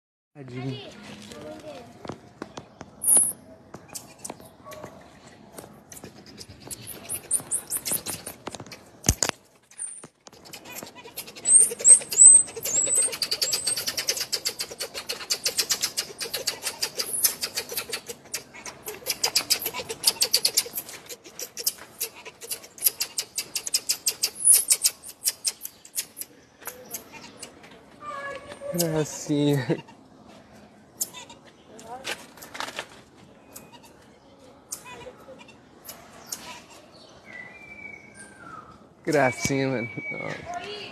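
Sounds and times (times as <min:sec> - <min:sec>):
marmosets chirping: 0:03.0 - 0:04.8, 0:05.9 - 0:08.9, 0:09.7 - 0:27.6.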